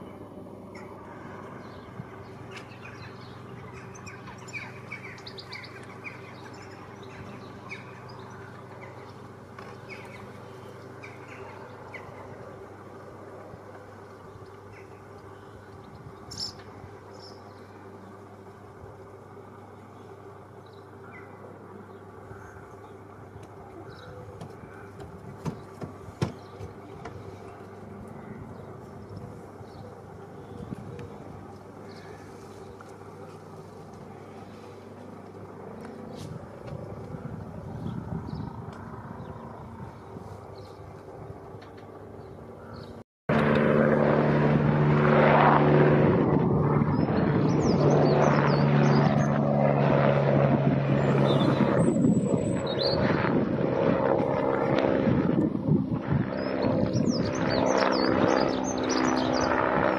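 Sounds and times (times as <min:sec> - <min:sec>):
small birds chirping: 0:00.0 - 0:12.9, 0:13.9 - 0:18.2, 0:19.8 - 0:41.1, 0:51.0 - 0:53.1, 0:56.4 - 0:59.7
helicopter in flight: 0:00.0 - 0:59.9
sharp knocks: 0:24.4 - 0:27.2.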